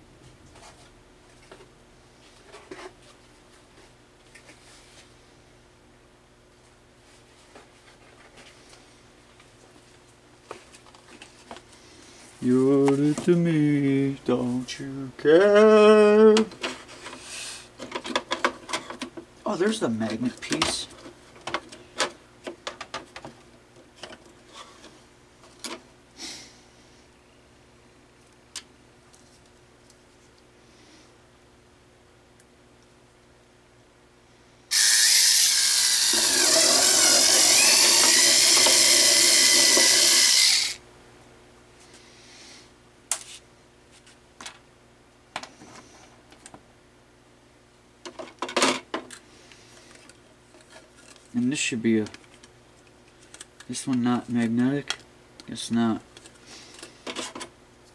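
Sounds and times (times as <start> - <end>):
faint steady hum: 0.0 - 57.9.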